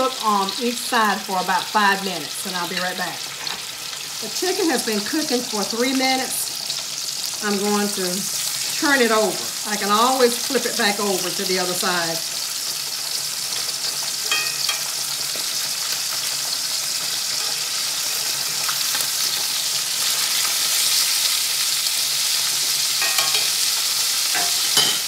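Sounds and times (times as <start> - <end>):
chicken sizzling in a skillet: 0.0 - 25.0
metal tongs clicking on pan: 23.0 - 23.6, 24.3 - 25.0.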